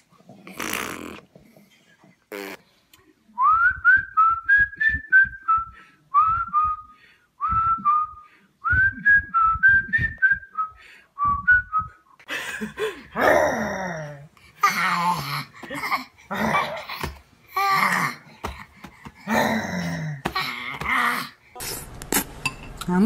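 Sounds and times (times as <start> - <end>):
person whistling: 3.4 - 12.1
baby laughing: 14.6 - 18.3.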